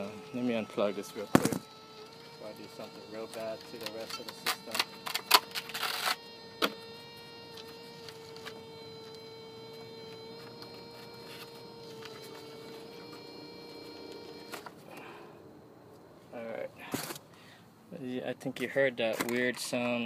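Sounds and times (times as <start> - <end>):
servo buzzing: 0.0 - 16.0.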